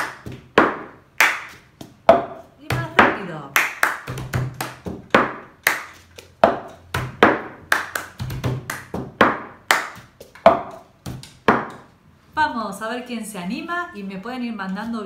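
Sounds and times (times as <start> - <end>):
hand claps: 0.0 - 1.9, 2.7 - 11.9.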